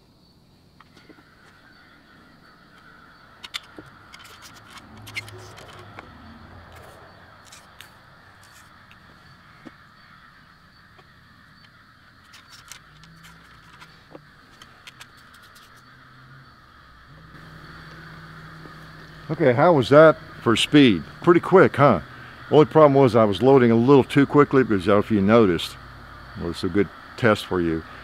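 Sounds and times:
clicks taps and scrapes: 12.3 - 15.8.

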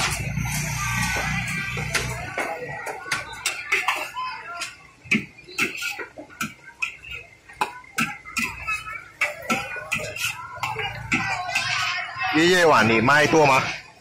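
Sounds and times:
metal ladle scraping a wok: 8.0 - 12.3.

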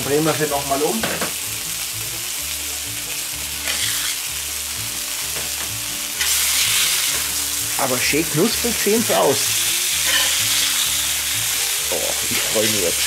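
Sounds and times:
patties sizzling on a griddle: 0.0 - 13.0.

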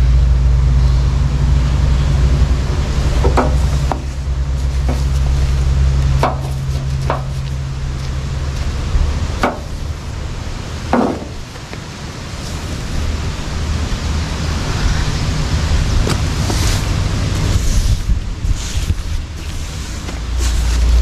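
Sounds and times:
low motor drone: 0.0 - 19.8.

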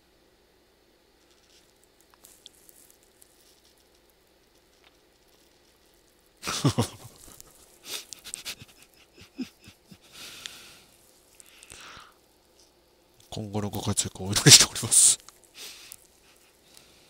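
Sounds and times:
man laughing: 6.4 - 10.4.

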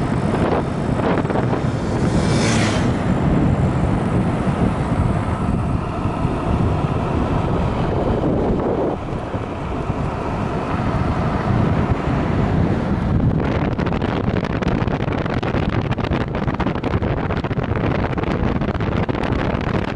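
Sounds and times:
wind buffeting microphone: 0.0 - 19.9
hissing whoosh: 1.0 - 13.3.

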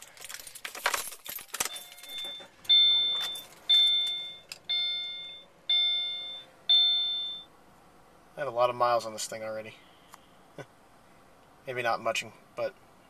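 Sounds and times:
car keys jangling: 0.0 - 4.7
dashboard warning chime: 1.6 - 7.5.

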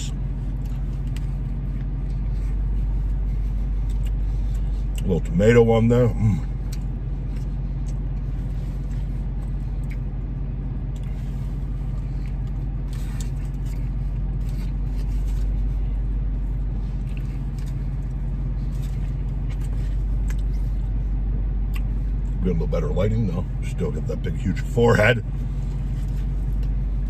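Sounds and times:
car engine idling: 0.0 - 27.0
person chewing: 0.5 - 5.0, 6.6 - 10.1, 16.8 - 20.8, 21.6 - 22.4.

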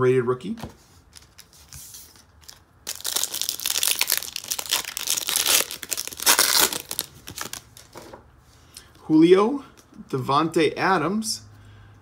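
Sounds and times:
foil wrapper crinkling: 1.2 - 8.0.

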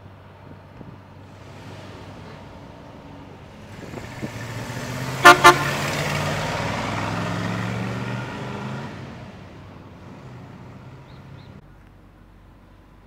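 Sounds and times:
truck engine driving past: 0.0 - 11.6
truck horn toots: 5.1 - 6.1.

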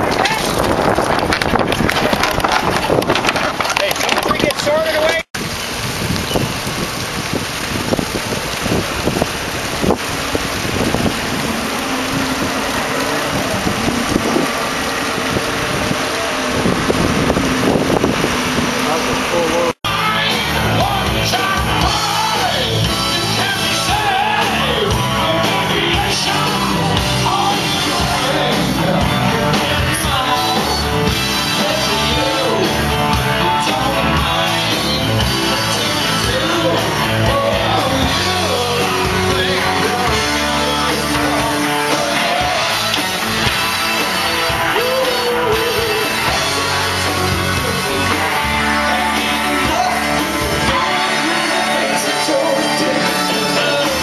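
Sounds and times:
drums: 0.0 - 8.1, 16.2 - 54.0
electric guitar: 8.7 - 54.0
man singing: 19.3 - 43.0, 44.4 - 54.0.

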